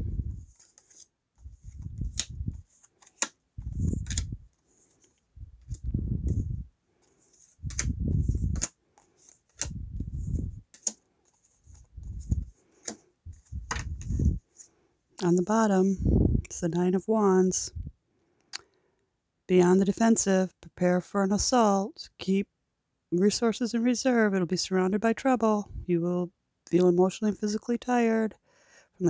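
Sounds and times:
cards slapping on wooden table: 1.7 - 4.3, 7.4 - 9.8, 10.7 - 13.0.

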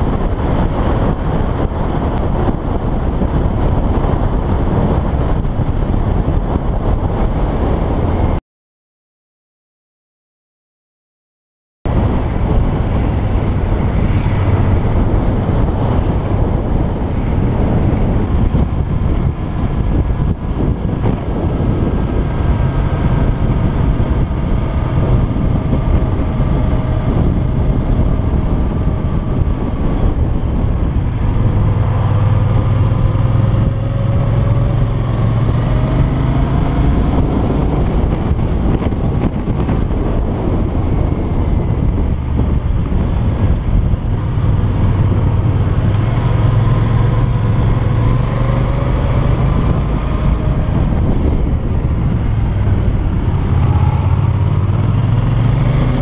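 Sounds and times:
wind rushing over camera: 0.0 - 8.4, 11.9 - 56.0
motorcycle engine running: 48.8 - 56.0.

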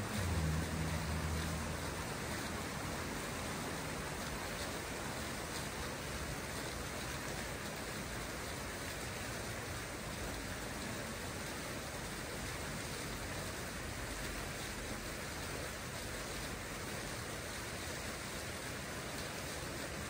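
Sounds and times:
water fountain splashing: 0.0 - 20.0.

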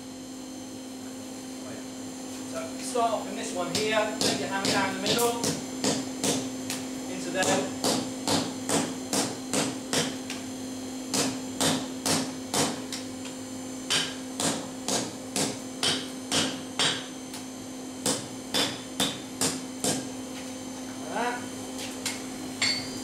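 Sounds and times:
steady hum: 0.0 - 23.0
hammer striking hot steel: 3.7 - 6.8, 7.4 - 10.4, 11.1 - 13.1, 13.9 - 17.4, 18.0 - 20.1, 22.0 - 23.0.

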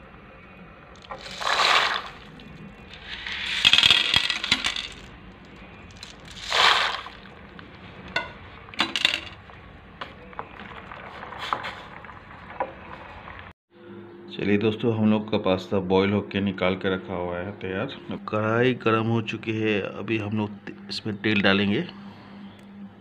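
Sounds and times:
dry pasta clattering into saucepan: 1.0 - 5.1, 5.9 - 7.4, 8.1 - 9.4
wooden spoon stirring pasta: 1.0 - 5.1, 5.9 - 13.2.

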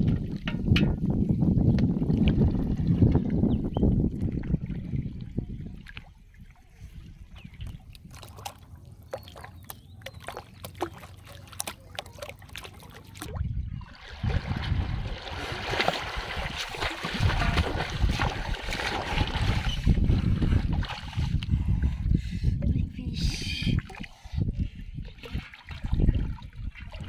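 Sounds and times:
water sloshing and splashing: 0.0 - 21.8, 23.7 - 27.0
water trickling: 2.0 - 20.2.

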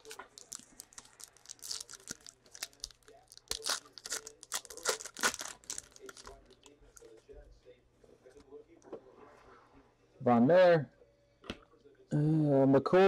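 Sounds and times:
foil wrapper crackling: 0.0 - 6.8.

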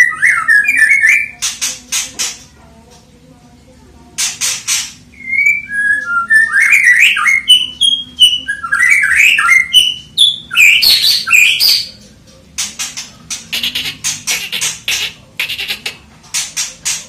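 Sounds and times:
harsh ticking bird notes: 4.2 - 17.0
bird singing whistled notes: 5.2 - 11.9.

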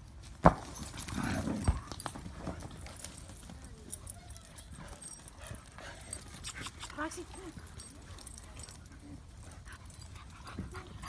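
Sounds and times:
dogs scuffling on dirt: 0.0 - 11.0
paws and bodies knocking: 0.3 - 8.8.

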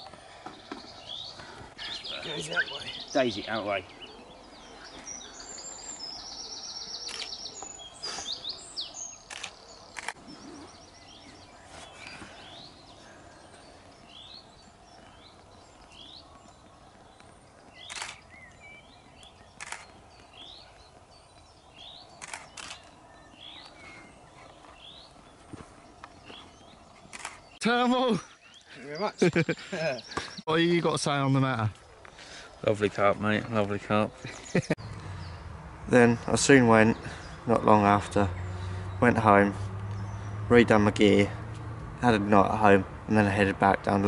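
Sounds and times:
small birds chirping: 0.0 - 44.0
camera shutter clicking: 22.2 - 22.9.

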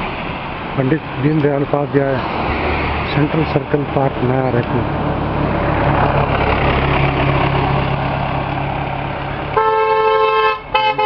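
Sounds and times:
road traffic going by: 0.0 - 11.0
vehicle engine running: 0.0 - 11.0
vehicle horn honking: 9.6 - 11.0.

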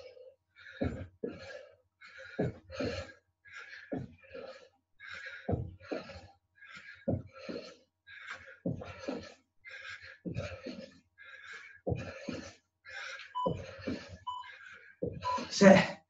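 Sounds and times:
person panting heavily: 0.0 - 16.0
dull thuds of jumps: 0.8 - 1.1, 5.4 - 6.1, 11.9 - 12.4, 13.4 - 14.2, 15.0 - 15.3.

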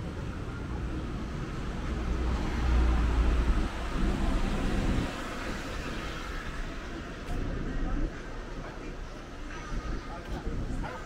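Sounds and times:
car passing by: 1.3 - 7.4.

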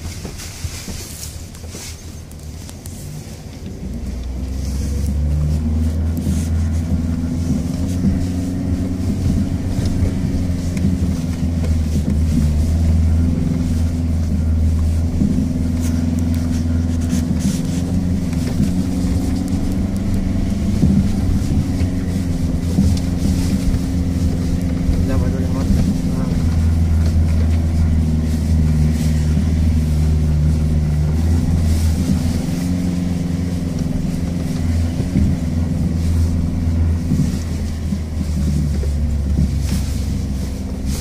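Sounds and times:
diesel engine under load: 0.0 - 41.0
knocks and rattles over bumps: 0.0 - 41.0.

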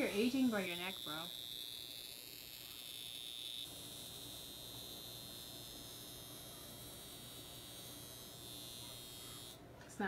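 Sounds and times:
skin wand buzzing whine: 0.0 - 10.0.

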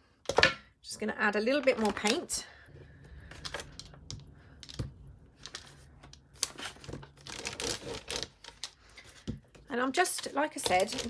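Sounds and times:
paper crinkling and rustling: 5.4 - 9.3, 10.1 - 11.0.

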